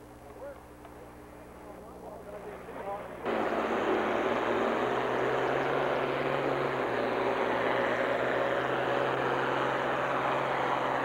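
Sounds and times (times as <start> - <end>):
tractor engine under heavy load: 2.2 - 11.0.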